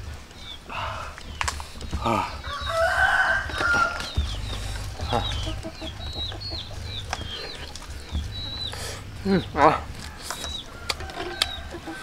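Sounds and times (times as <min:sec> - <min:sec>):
small birds chirping: 0:00.0 - 0:12.0
rooster crowing: 0:02.0 - 0:07.4, 0:09.7 - 0:12.0.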